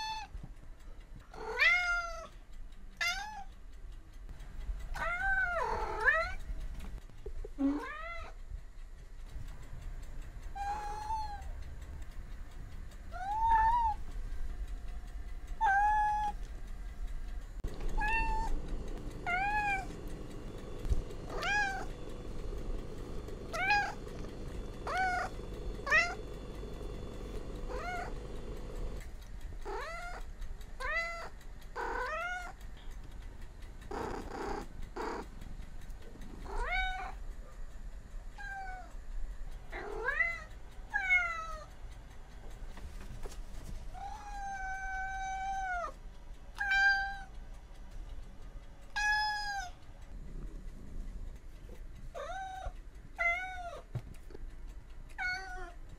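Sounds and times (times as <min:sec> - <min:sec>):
cat meowing: 0:01.4 - 0:02.3, 0:03.0 - 0:03.5, 0:05.0 - 0:06.4, 0:07.6 - 0:08.4, 0:10.6 - 0:11.5, 0:13.1 - 0:14.0, 0:15.6 - 0:16.4, 0:17.9 - 0:18.5, 0:19.2 - 0:19.9, 0:21.3 - 0:21.9, 0:23.5 - 0:24.0, 0:24.8 - 0:26.2, 0:27.7 - 0:28.1, 0:44.0 - 0:46.0, 0:46.6 - 0:47.3, 0:48.9 - 0:49.8, 0:52.2 - 0:53.9.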